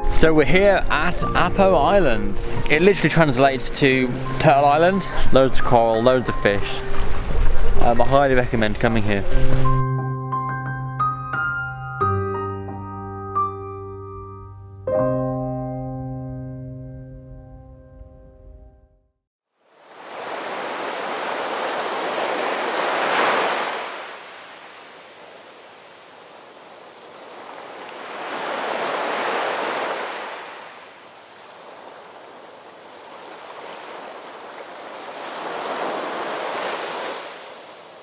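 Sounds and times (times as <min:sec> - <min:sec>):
ocean waves washing in: 0:19.6 - 0:38.0.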